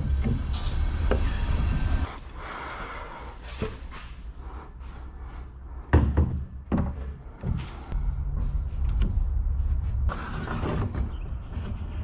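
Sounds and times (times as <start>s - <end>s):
low rumble: 7.7s - 12.0s
wood scraping rub: 8.6s - 12.0s.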